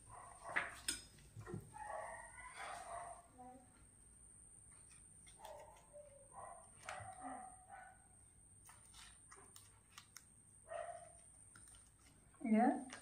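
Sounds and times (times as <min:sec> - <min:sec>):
leaf packet crinkling: 0:11.0 - 0:13.0.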